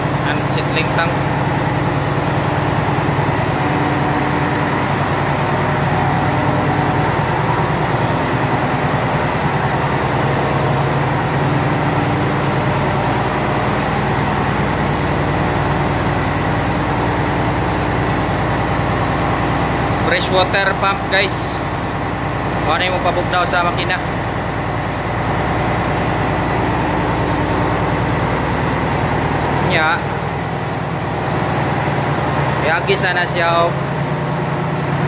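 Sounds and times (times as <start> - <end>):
ship engine room drone: 0.0 - 35.0.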